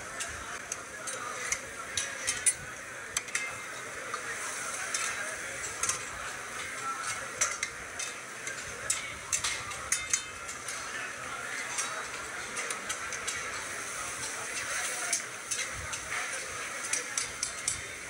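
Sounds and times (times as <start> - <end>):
meat sizzling in a pan: 4.2 - 18.0.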